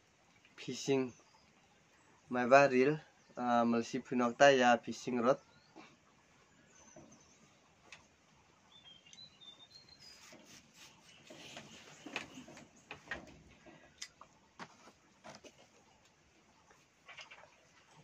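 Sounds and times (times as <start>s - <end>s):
faint bird chirps: 5.2s - 13.2s.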